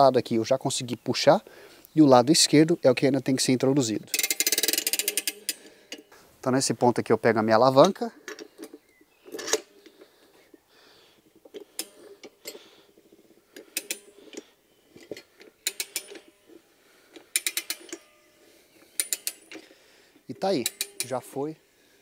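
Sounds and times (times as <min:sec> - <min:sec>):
metal lever clacking on wheel rim: 0:20.6 - 0:21.4.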